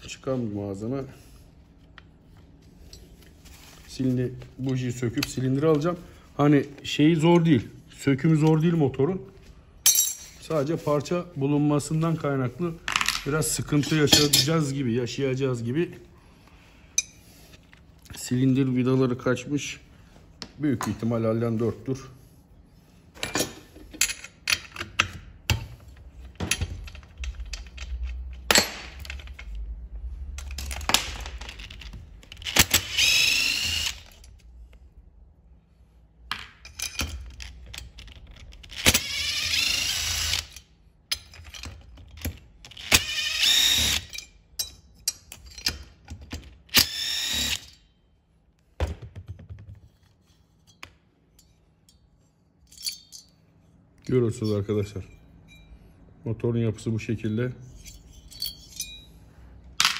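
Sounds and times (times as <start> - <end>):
power screwdriver whirring: 32.4 - 34.2, 38.7 - 40.6, 42.7 - 44.1, 46.7 - 47.7
metal tools clicking and knocking: 44.1 - 46.5, 52.6 - 53.4, 57.8 - 59.2.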